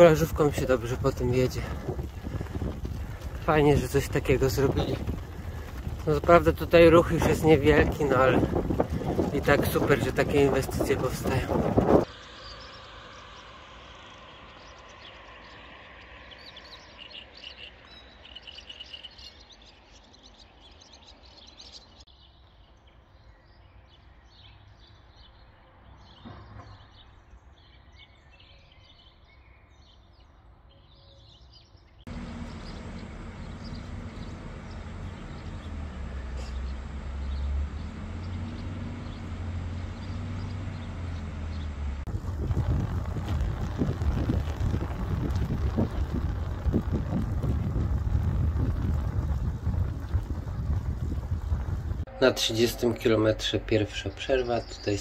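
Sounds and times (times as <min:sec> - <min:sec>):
low rumble with hum: 0:00.0 - 0:15.1, 0:32.1 - 0:54.9
small birds chirping: 0:00.0 - 0:55.0.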